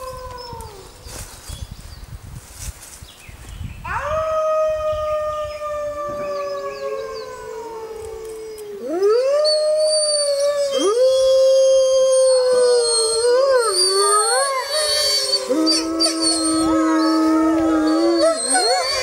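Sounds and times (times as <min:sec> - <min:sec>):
wolves howling: 0:03.9 - 0:19.0.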